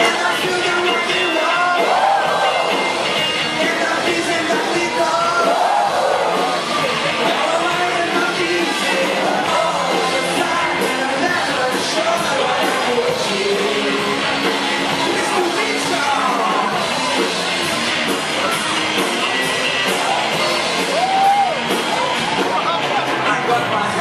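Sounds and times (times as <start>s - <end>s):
man singing: 0.0s - 6.3s, 7.0s - 16.8s, 22.9s - 24.0s
drums: 0.0s - 24.0s
electric guitars: 0.0s - 24.0s.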